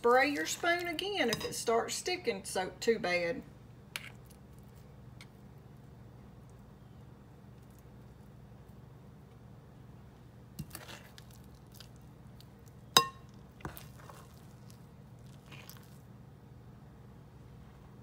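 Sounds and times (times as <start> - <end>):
spoon scooping batter: 10.6 - 16.1
spoon clinking against dish: 13.0 - 13.2.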